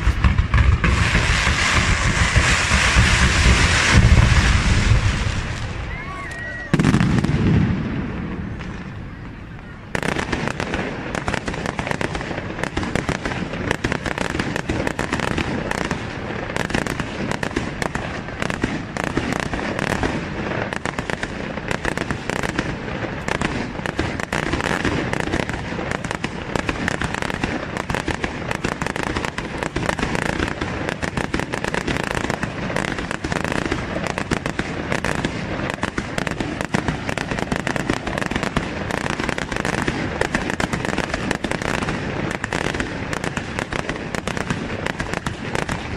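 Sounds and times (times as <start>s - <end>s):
fireworks bangs: 0.0s - 45.9s.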